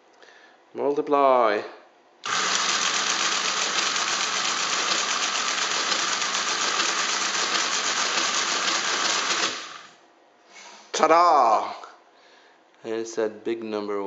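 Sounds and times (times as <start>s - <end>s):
mechanical calculator clattering: 2.2s - 9.9s.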